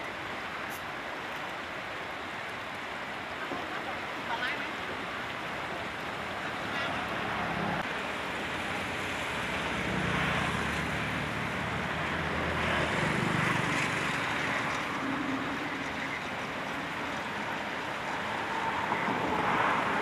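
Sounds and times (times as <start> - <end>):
fast river rushing: 0.0 - 20.0
wind on microphone: 9.8 - 20.0.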